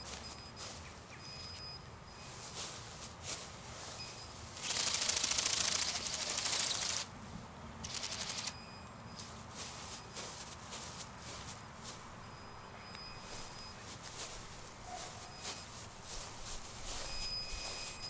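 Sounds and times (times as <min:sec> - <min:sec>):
robotic bird wings fluttering buzz: 0:04.6 - 0:07.1, 0:07.8 - 0:08.5.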